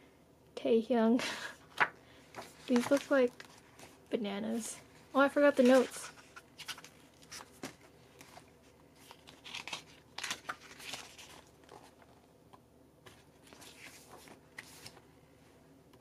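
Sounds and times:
book pages turning: 1.7s - 4.1s, 5.6s - 12.2s, 13.0s - 15.1s.

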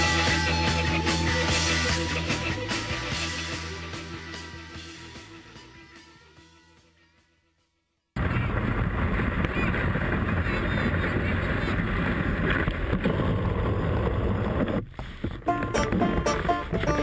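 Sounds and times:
wind on microphone: 8.2s - 15.4s
sled runners gliding over snow: 8.2s - 17.0s.

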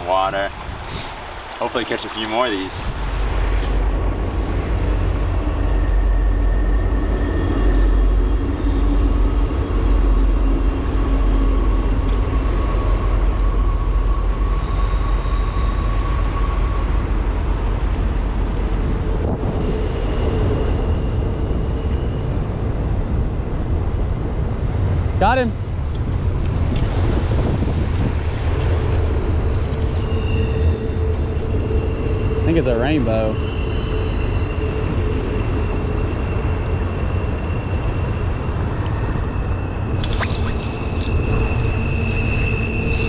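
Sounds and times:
freight train rumbling past: 0.0s - 40.0s, 40.7s - 43.0s
faint high squealing: 23.8s - 25.9s, 28.7s - 43.0s.

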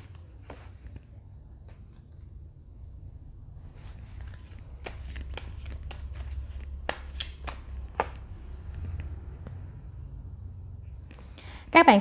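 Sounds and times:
cards snapping and slapping: 4.1s - 8.4s.

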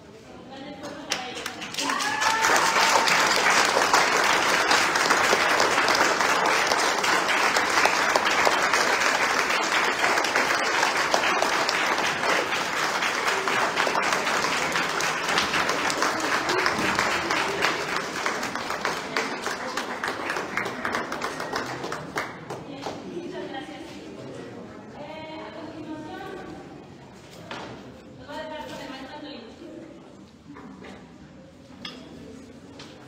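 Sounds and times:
audience applauding: 1.4s - 22.6s.

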